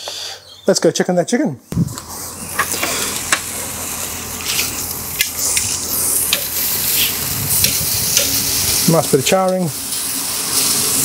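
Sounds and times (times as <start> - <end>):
fat popping and crackling: 1.9 - 8.8
chicken sizzling on a grill: 2.0 - 11.0.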